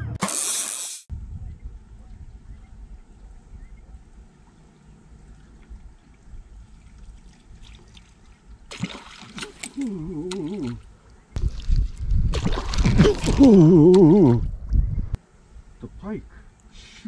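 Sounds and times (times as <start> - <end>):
water splashing: 4.7 - 14.4
water lapping at rocks: 5.2 - 14.2.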